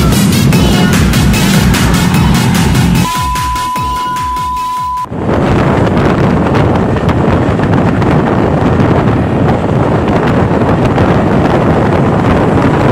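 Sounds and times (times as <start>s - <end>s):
road noise: 0.0s - 4.4s, 5.0s - 12.9s
wind buffeting microphone: 5.1s - 12.9s.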